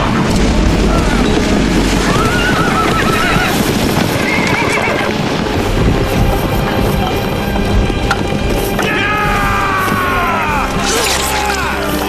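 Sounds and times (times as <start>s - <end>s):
horses whinnying: 0.0s - 5.5s, 8.8s - 12.0s
horses galloping hooves: 0.0s - 12.0s.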